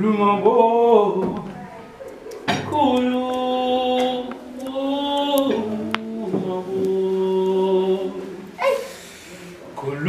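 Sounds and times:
man singing wordless notes: 0:00.0 - 0:01.4, 0:02.6 - 0:08.6.

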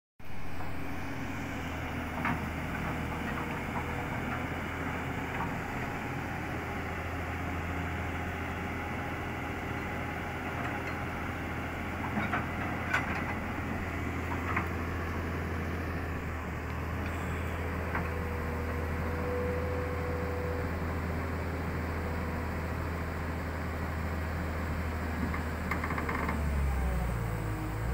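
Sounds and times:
faint whine: 0:00.2 - 0:21.1
excavator diesel engine running: 0:00.2 - 0:27.9.

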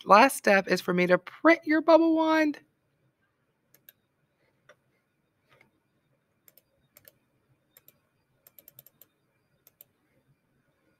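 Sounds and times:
computer mouse clicks: 0:03.7 - 0:04.0, 0:06.4 - 0:10.0.

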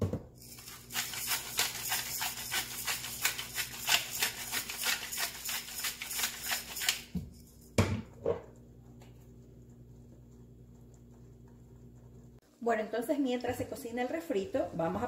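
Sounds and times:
pepper grinder crunching: 0:00.4 - 0:07.4.

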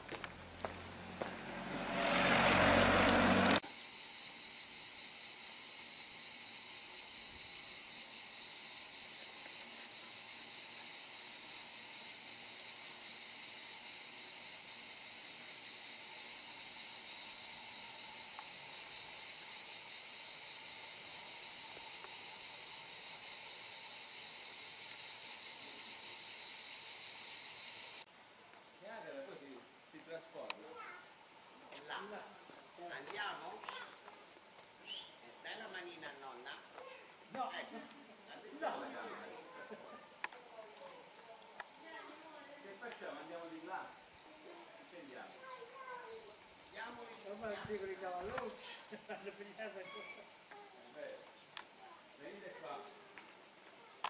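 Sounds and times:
high-pitched insect chorus: 0:00.0 - 0:54.0
car driving past: 0:00.4 - 0:03.6.

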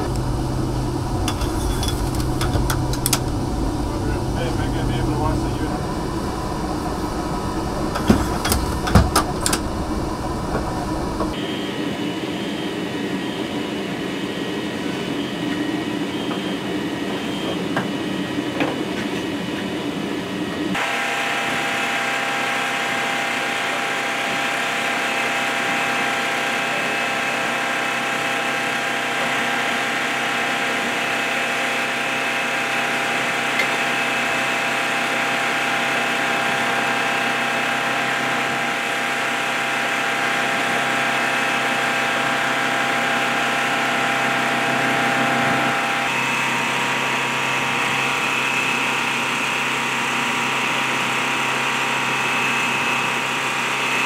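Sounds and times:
aircraft engines running: 0:00.0 - 0:54.0.

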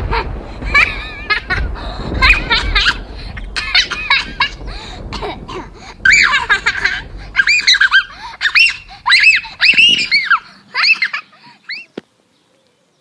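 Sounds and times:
girl laughing in squeaky voice: 0:06.0 - 0:11.9
girl squealing: 0:06.0 - 0:12.0.

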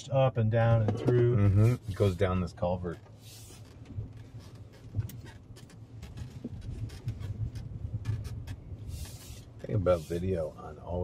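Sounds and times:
low drivetrain and tyre rumble: 0:00.0 - 0:11.0
knocks and rattles over bumps: 0:02.8 - 0:09.8.

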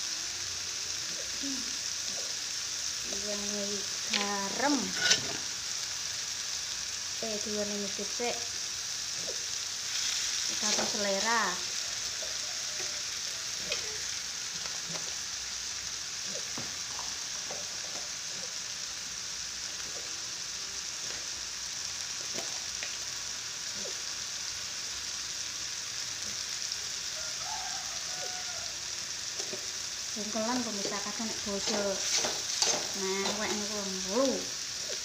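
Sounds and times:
chili paste sizzling in oil: 0:00.0 - 0:35.0
small pops and crackles: 0:22.2 - 0:23.0.

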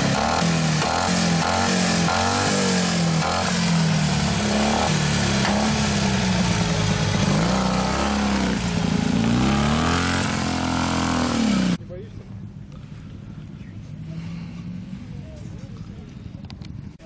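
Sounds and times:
motorcycle engine revving: 0:00.0 - 0:11.8.

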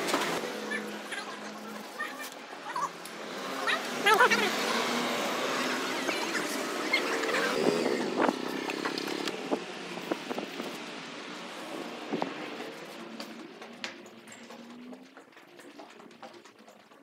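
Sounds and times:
motorbikes and scooters: 0:00.0 - 0:17.0
street traffic rumble: 0:00.0 - 0:17.0
sharp clicks and knocks: 0:11.9 - 0:17.0.

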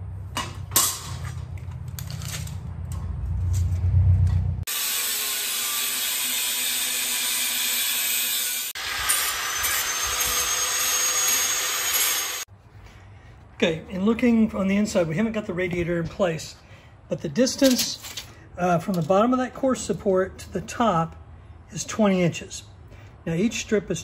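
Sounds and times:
angle grinder cutting steel: 0:04.7 - 0:12.5.

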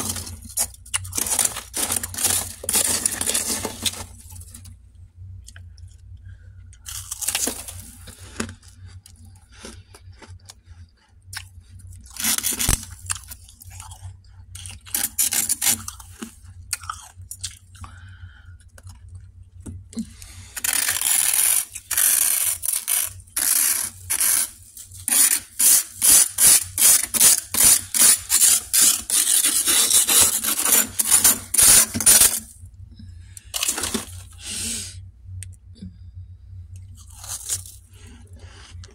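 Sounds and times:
frost scraping in freezer: 0:00.0 - 0:04.7, 0:06.9 - 0:08.6, 0:12.0 - 0:14.0, 0:14.6 - 0:16.4, 0:20.0 - 0:32.6, 0:33.5 - 0:34.9, 0:37.0 - 0:38.8.

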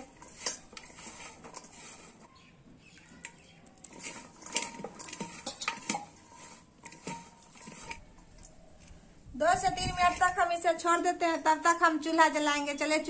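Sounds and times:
okra rustling in a bowl: 0:00.0 - 0:13.0.

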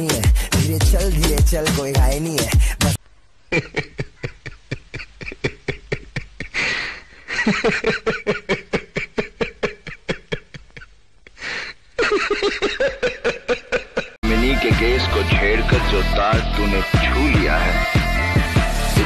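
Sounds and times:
gasping in-breath: 0:00.3 - 0:00.6, 0:02.5 - 0:03.0
person laughing hard: 0:03.5 - 0:14.2.

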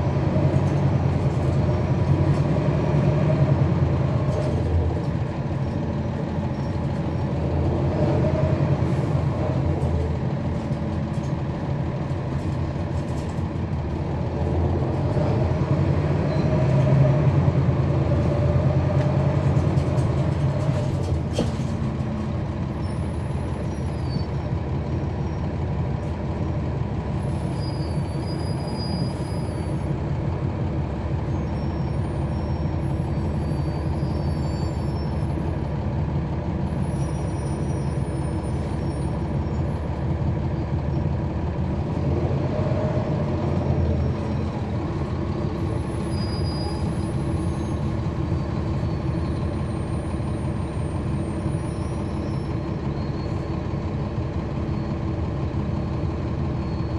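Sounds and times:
bus diesel engine running: 0:00.0 - 0:56.9.

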